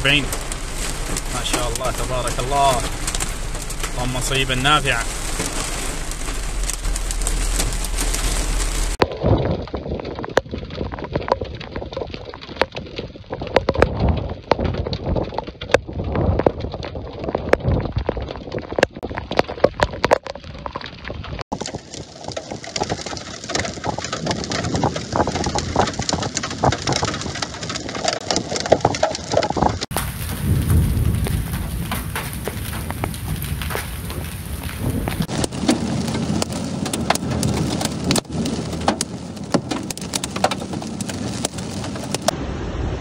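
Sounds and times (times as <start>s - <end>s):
heavy rain hissing: 0.0s - 9.0s, 29.9s - 42.6s
hailstones clicking: 0.0s - 42.4s.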